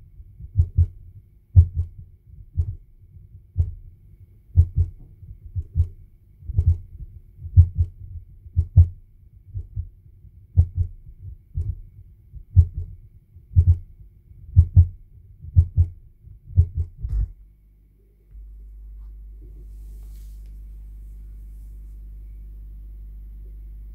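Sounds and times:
low double thumps: 0.0 - 17.4.

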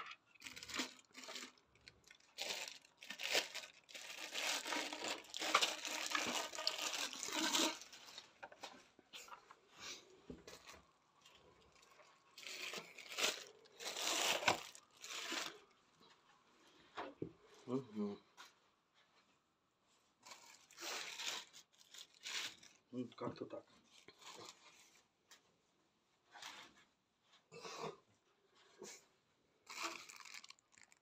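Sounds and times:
plastic packaging crinkling: 0.3 - 8.6, 10.6 - 15.7, 20.2 - 22.9, 29.6 - 31.0.

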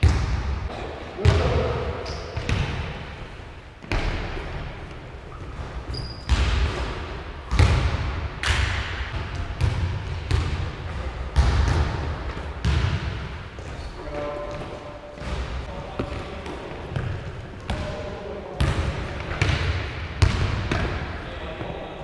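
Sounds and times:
basketball bouncing on wooden floor: 7.5 - 8.0, 9.1 - 10.6, 11.4 - 13.8, 18.6 - 21.0.

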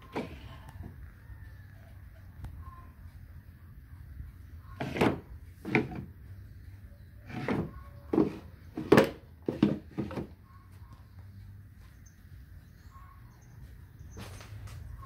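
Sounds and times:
wooden drawers sliding: 4.8 - 6.1, 7.3 - 10.3.

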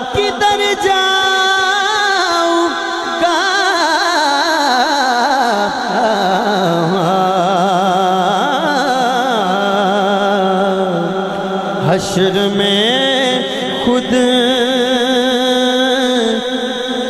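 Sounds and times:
man singing melisma: 0.0 - 17.0.

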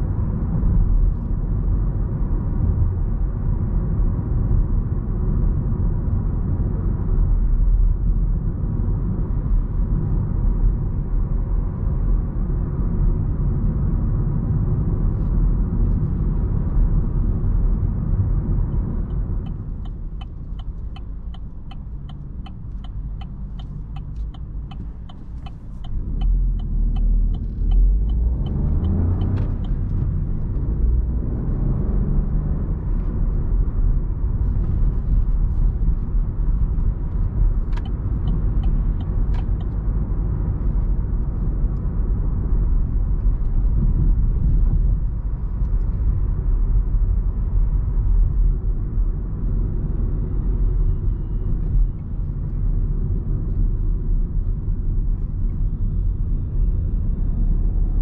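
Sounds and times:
car road and engine rumble: 0.0 - 58.0
turn signal ticking: 18.6 - 31.6, 34.4 - 40.1
engine revving: 26.0 - 32.7.

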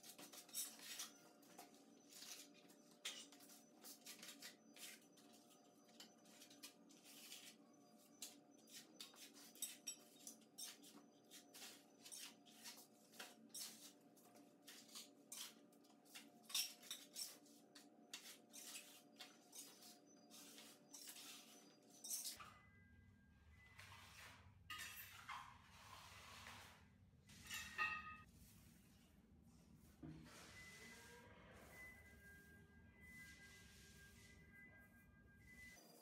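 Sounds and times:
hand tool scraping plaster: 23.8 - 27.8.

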